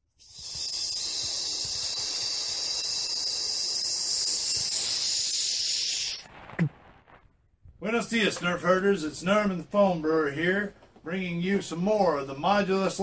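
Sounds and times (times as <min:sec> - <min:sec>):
high-pitched rushing hiss: 0:00.0 - 0:06.3.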